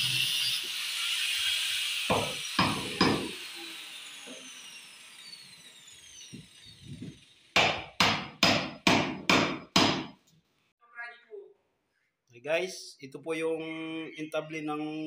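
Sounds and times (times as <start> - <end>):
hammer striking chisel into wood: 2.1 - 3.4, 7.6 - 10.2.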